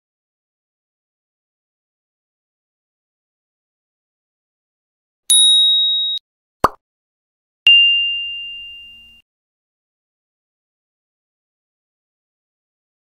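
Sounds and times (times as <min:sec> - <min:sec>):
high bell-like ding: 0:05.3 - 0:06.2, 0:07.7 - 0:09.2
lower ding: 0:05.3 - 0:06.2, 0:07.7 - 0:09.2.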